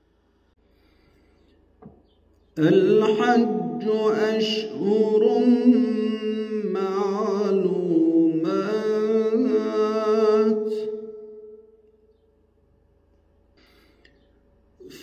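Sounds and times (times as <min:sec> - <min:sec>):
man chanting melodically: 0:02.6 - 0:11.5.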